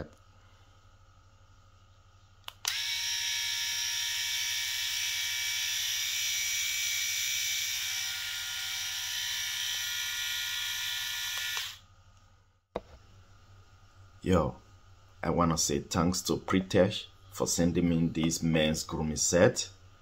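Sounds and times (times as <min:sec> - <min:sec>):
electric shaver motor whine: 0:02.6 - 0:11.8.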